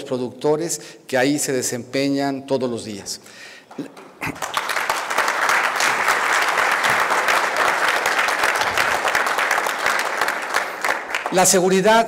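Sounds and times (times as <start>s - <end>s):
audience applauding: 4.0s - 11.8s.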